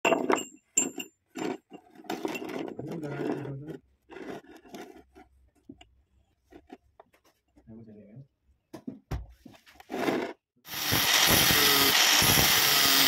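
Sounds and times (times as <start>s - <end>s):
metal bar scraping on wood: 0.1s - 5.4s.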